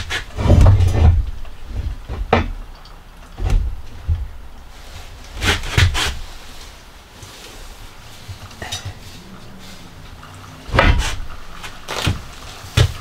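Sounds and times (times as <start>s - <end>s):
heavy sink thumps and knocks: 0.4s - 2.7s, 3.4s - 4.4s, 10.7s - 13.0s.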